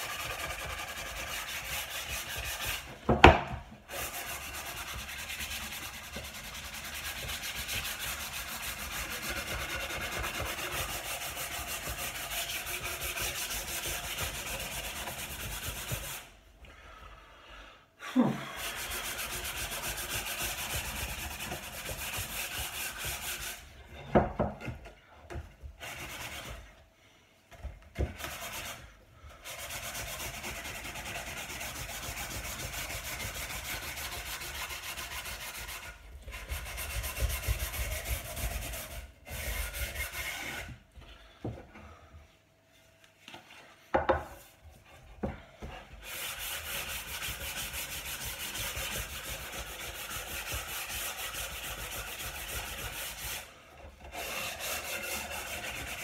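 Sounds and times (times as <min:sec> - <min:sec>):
sanding wood: 0:00.0 - 0:16.4, 0:18.6 - 0:23.7, 0:25.8 - 0:26.7, 0:28.0 - 0:28.8, 0:29.4 - 0:40.8, 0:45.9 - 0:56.0.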